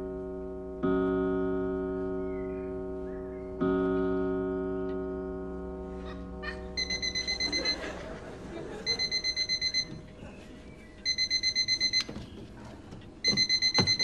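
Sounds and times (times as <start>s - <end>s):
alarm clock beeping: 6.4s - 10.2s, 11.0s - 12.4s, 13.2s - 14.0s.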